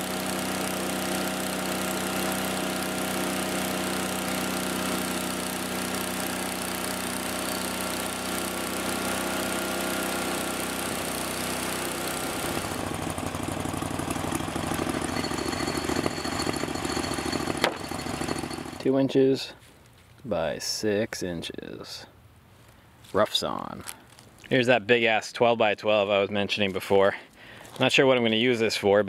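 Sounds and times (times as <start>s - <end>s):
sawmill engine running: 0.0s - 18.9s.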